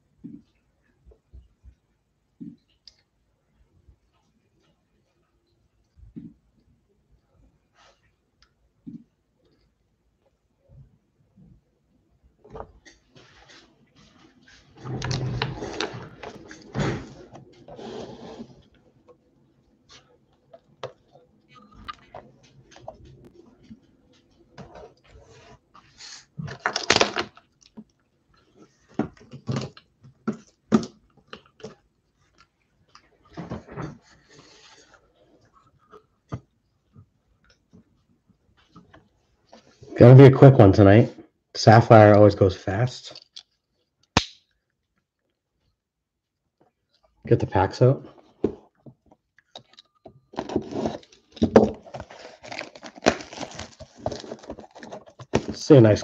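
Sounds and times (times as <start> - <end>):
objects rustling on a table: 48.2 - 55.6
shrink wrap crinkling and tearing: 50.3 - 55.7.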